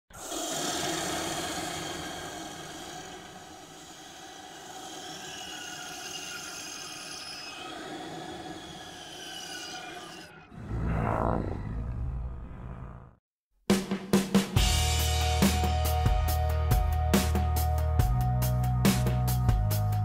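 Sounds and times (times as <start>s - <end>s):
rushing noise with whistling tones: 0.2s - 11.9s.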